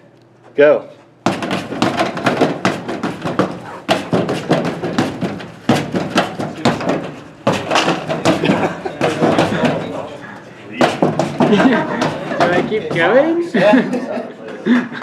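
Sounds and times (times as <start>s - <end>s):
punching bag thuds: 1.2s - 9.8s.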